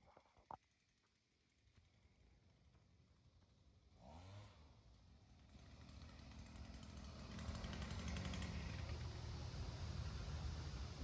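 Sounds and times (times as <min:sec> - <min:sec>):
small engine drone: 0:03.6 - 0:11.0.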